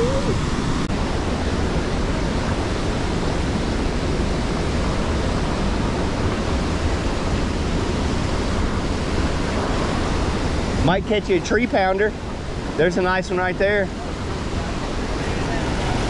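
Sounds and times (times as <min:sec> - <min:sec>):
water rushing through floodgates: 0:00.0 - 0:16.0.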